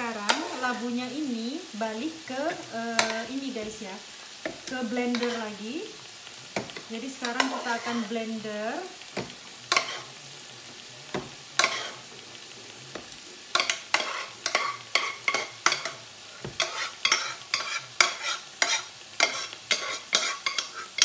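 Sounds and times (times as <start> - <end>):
spoon scraping saucepan: 4.5 - 5.4, 6.6 - 8.1, 9.7 - 10.1, 11.1 - 12.0, 13.5 - 21.0.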